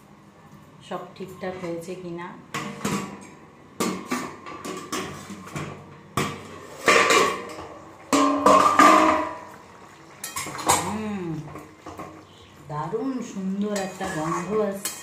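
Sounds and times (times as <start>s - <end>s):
metal lid clanking on pan: 6.8s - 9.4s
spatula scraping in pan: 13.3s - 15.0s.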